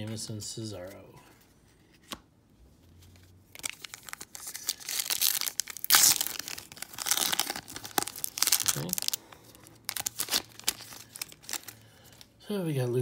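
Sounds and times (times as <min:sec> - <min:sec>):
wrapper tearing and crinkling: 0:03.5 - 0:12.3.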